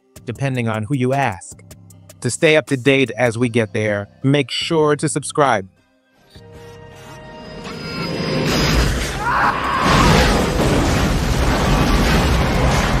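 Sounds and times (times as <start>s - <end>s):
deep rumbling explosion: 9.8s - 13.0s.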